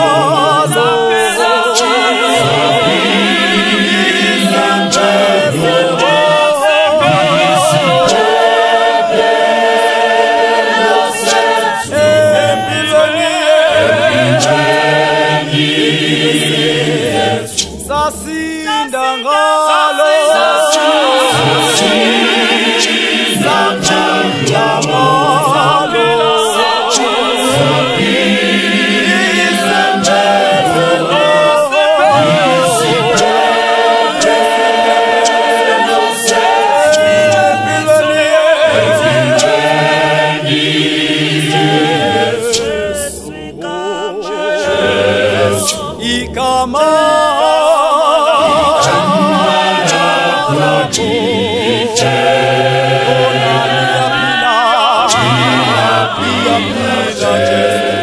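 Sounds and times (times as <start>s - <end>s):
gospel choir singing a cappella: 0.0s - 58.0s.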